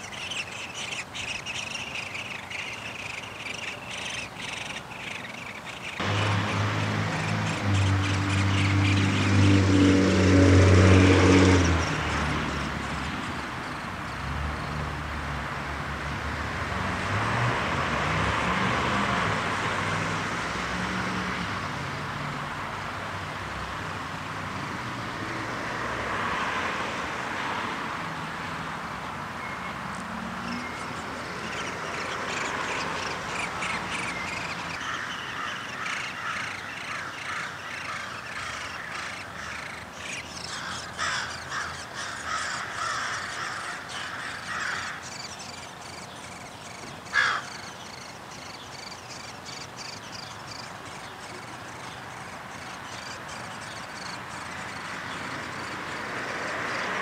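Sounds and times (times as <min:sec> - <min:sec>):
harsh raspy bird calls: 0:00.0 - 0:14.0, 0:30.0 - 0:57.0.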